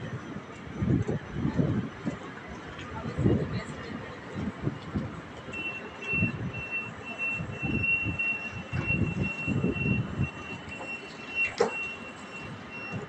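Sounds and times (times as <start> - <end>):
rapid high-pitched door beeping: 5.5 - 13.0.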